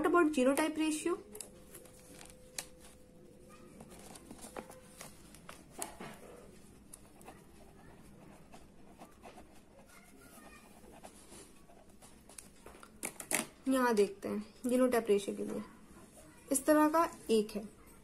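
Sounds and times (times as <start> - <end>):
pen scratching on paper: 3.8 - 12.6.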